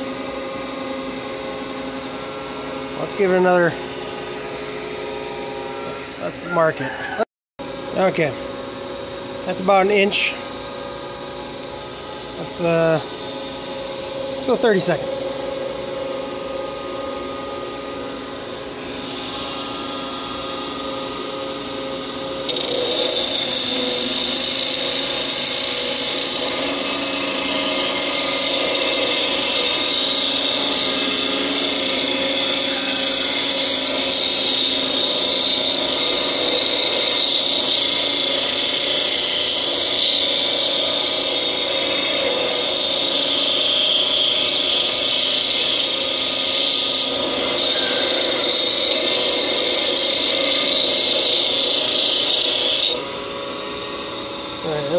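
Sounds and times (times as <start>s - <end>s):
grinder motor humming: 0.0s - 54.9s
metal grinding on wheel: 22.5s - 53.0s.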